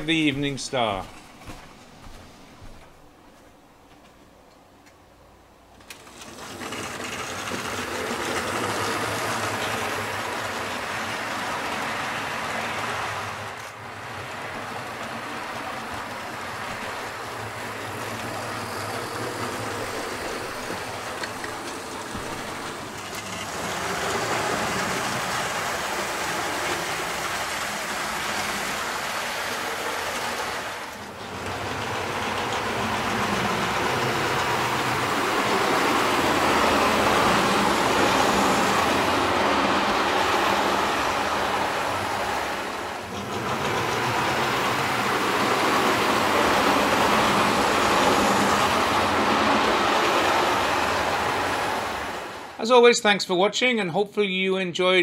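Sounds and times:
wheels rumbling on track: 5.7 - 52.6
model train motor whirring: 5.8 - 52.5.

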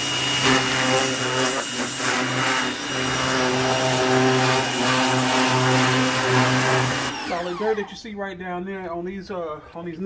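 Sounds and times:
water spraying hiss: 0.0 - 7.1
pressure washer motor humming: 0.0 - 8.0.

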